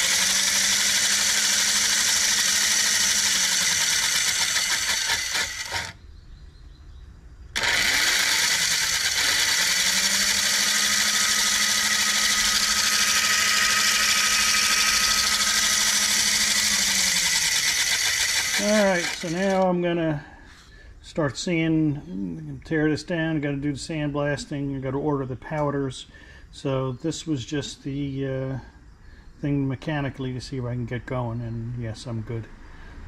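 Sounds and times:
electric motor and gears whirring: 0:00.0 - 0:06.0, 0:07.6 - 0:19.8.

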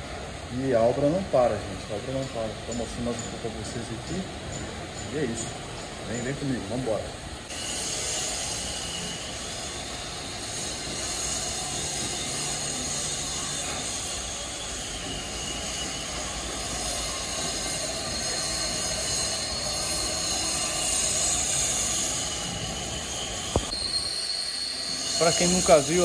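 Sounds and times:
continuous hiss: 0:00.0 - 0:14.6
faint high whining tones: 0:00.5 - 0:26.0.

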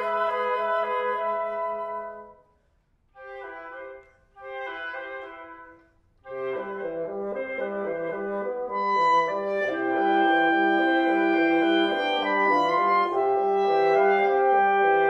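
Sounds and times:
woodwind quintet playing: 0:00.0 - 0:15.0.

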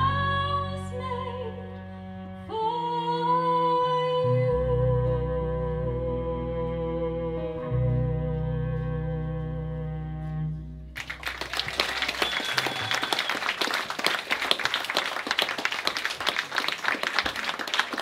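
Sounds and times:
audience applauding: 0:11.0 - 0:18.0.

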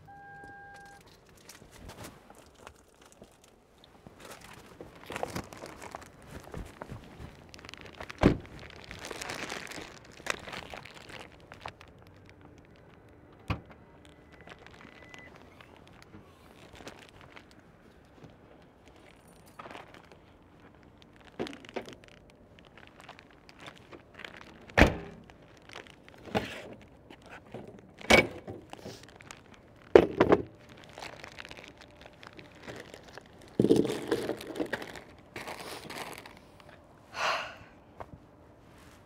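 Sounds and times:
rustling: 0:28.6 - 0:36.7.

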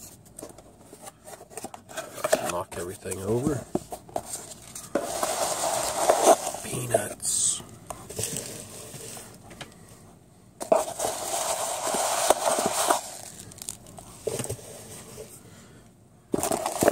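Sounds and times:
packing peanuts rustling: 0:04.2 - 0:09.4, 0:10.7 - 0:15.0, 0:16.4 - 0:16.9.

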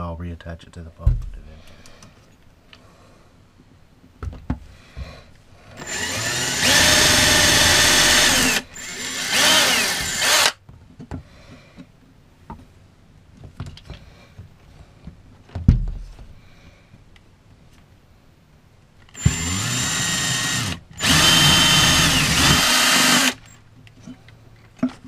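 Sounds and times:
cordless drill drilling: 0:05.8 - 0:10.6, 0:19.2 - 0:23.6.

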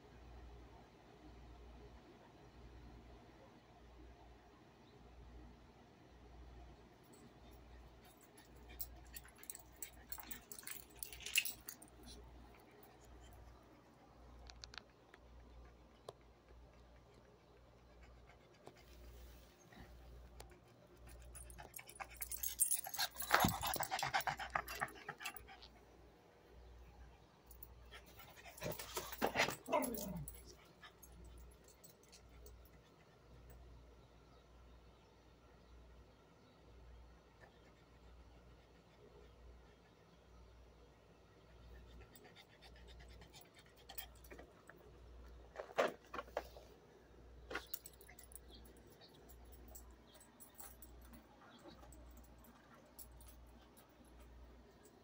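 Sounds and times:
collar tags jingling: 0:07.0 - 0:18.8, 0:20.4 - 0:25.8, 0:26.9 - 0:33.6, 0:41.8 - 0:46.6, 0:47.4 - 0:55.0
dogs panting: 0:14.8 - 0:26.1
small dog barking: 0:29.5 - 0:30.3.

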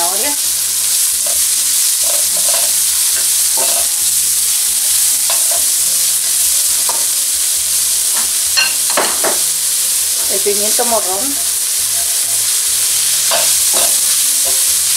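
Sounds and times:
vegetables sizzling in oil: 0:00.0 - 0:14.9
spoon scraping a pan: 0:00.8 - 0:04.2, 0:04.8 - 0:07.2, 0:08.0 - 0:09.5, 0:11.6 - 0:14.9.

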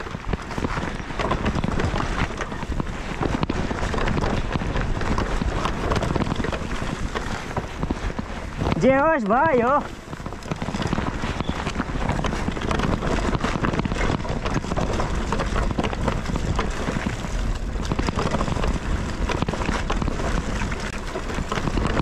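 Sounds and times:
bike rattling clicks: 0:00.0 - 0:22.0
tyres rumbling on dirt: 0:00.0 - 0:22.0
wind buffeting microphone: 0:00.0 - 0:22.0.

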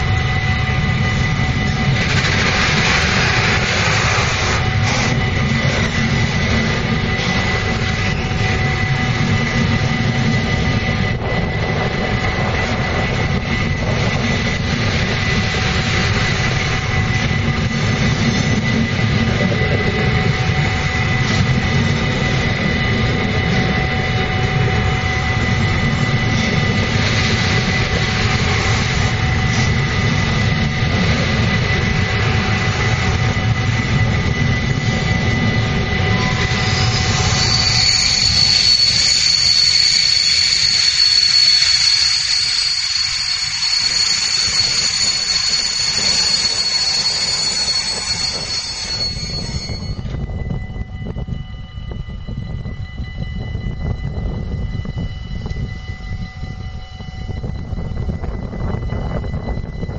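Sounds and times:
train wheels rumbling on rails: 0:00.0 - 0:59.9
thin high tone: 0:35.1 - 0:59.9.

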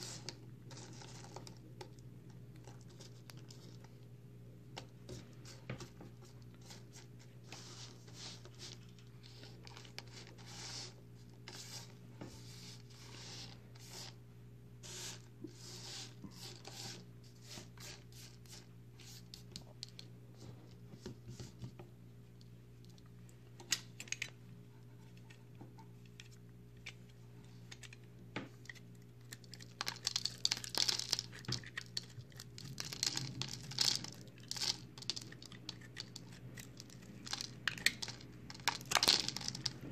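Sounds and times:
soap shavings clicking and rustling: 0:28.6 - 0:39.9.

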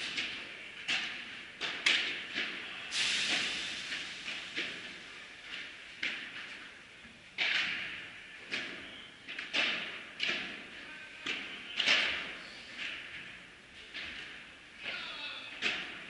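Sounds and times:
padel rackets hitting ball: 0:09.3 - 0:12.4.

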